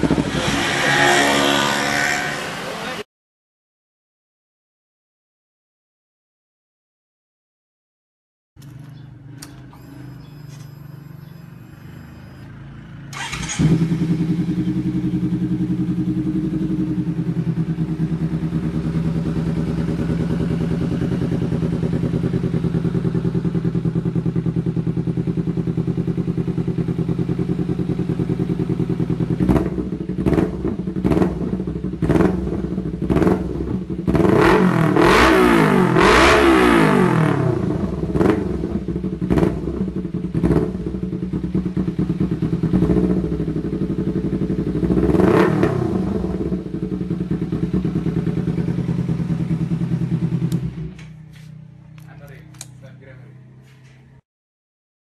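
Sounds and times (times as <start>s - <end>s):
motorcycle engine idling: 8.6s - 34.1s, 37.8s - 45.2s, 46.0s - 53.7s
motorcycle throttle blips: 13.1s - 33.8s, 37.8s - 52.9s.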